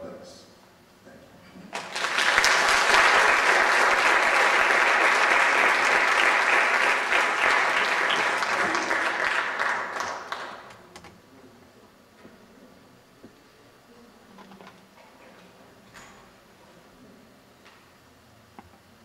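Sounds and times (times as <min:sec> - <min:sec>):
audience applauding: 0:01.7 - 0:10.8.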